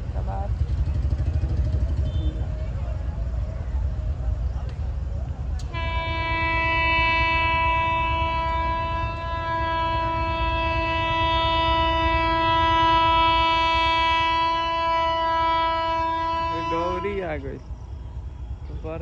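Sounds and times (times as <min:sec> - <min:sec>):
train horn blast: 0:05.6 - 0:18.6.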